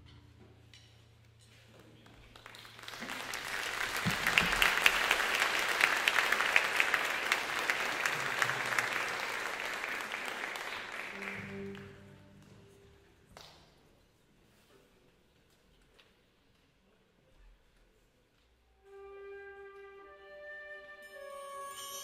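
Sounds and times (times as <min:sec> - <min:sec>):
audience applauding: 0:02.1 - 0:12.5.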